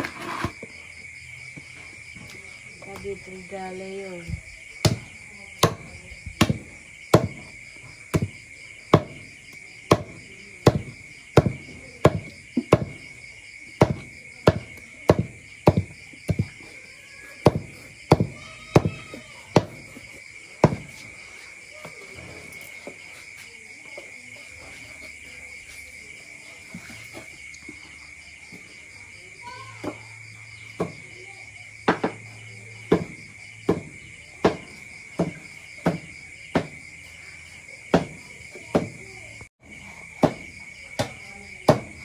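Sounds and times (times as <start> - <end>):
crickets chirping: 0.0 - 42.0
knife chopping on a board: 32.9 - 36.8.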